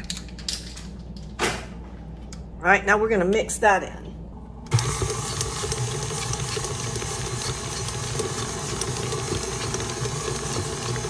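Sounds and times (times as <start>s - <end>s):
stand mixer motor humming: 4.7s - 11.0s.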